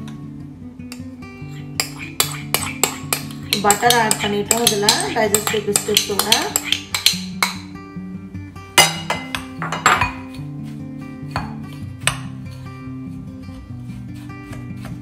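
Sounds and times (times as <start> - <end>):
acoustic guitar music: 0.0 - 15.0
metal spoon striking bowl: 1.8 - 7.7, 8.8 - 10.4
spoon tapping ceramic bowl: 1.8 - 7.7.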